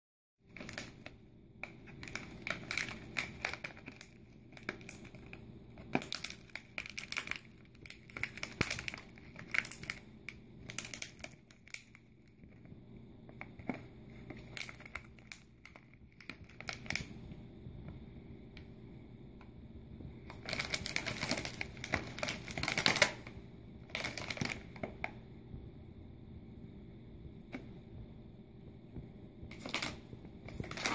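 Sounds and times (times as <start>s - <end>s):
chip bag crinkling: 0.5s - 12.6s, 13.3s - 17.2s, 20.2s - 25.1s, 29.5s - 30.9s.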